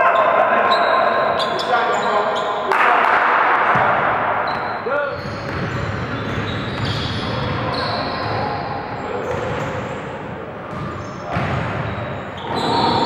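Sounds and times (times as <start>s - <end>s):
basketball bouncing: 5.4s - 7.6s, 10.7s - 12.6s.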